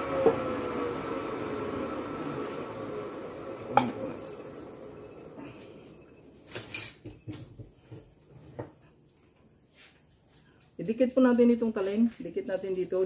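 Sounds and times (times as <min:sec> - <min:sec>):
metal lathe spinning down: 0:00.0 - 0:05.5.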